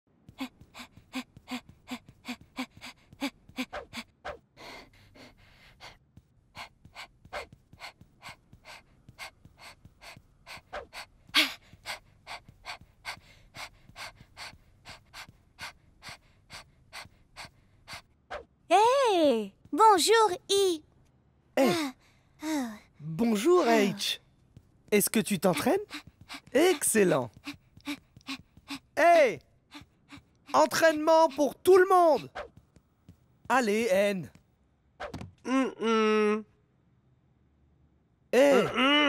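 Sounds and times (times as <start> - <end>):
cartoon voice panting: 25.4 - 29.0, 29.7 - 32.3.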